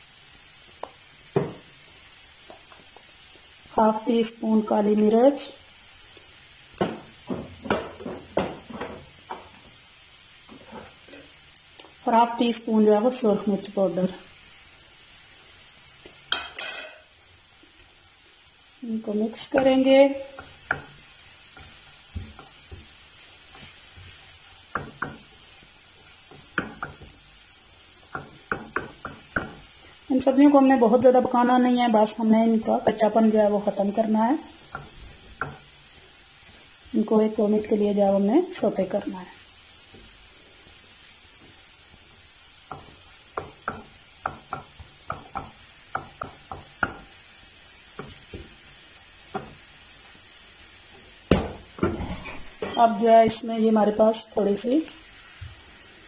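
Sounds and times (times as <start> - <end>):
vegetables sizzling in a pan: 0.0 - 56.0
spatula scraping and knocking pan: 1.3 - 1.7, 6.8 - 9.6, 19.4 - 27.2, 28.0 - 29.8, 34.6 - 36.6, 41.4 - 47.2, 47.9 - 49.8.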